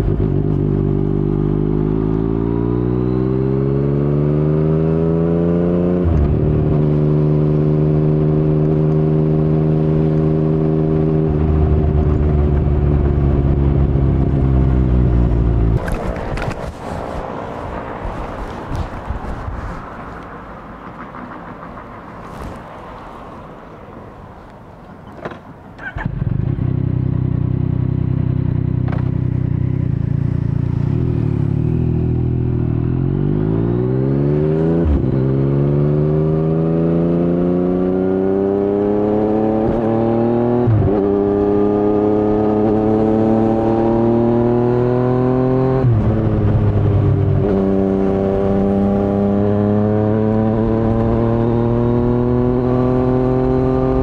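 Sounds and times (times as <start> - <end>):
motorcycle engine idling and revving: 0.0 - 54.0.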